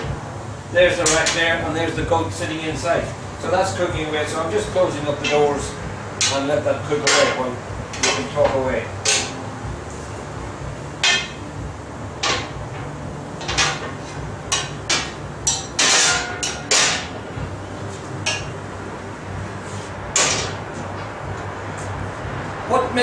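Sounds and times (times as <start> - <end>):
metal oven doors clanking: 12.2 - 17.2.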